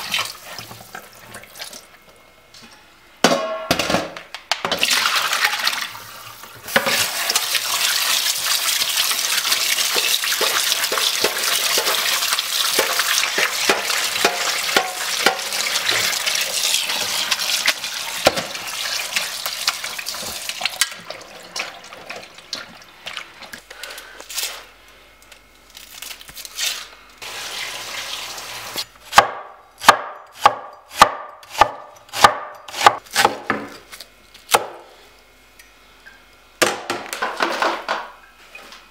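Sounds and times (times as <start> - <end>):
knife chopping on wooden board: 29.1 - 33.8.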